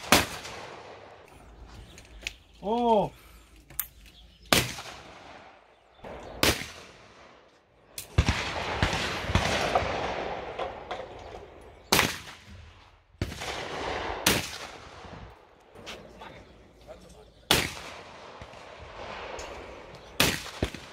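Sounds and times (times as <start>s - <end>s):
shotgun shots: 0.0s - 1.2s, 4.5s - 7.4s, 8.0s - 15.4s, 17.5s - 20.9s.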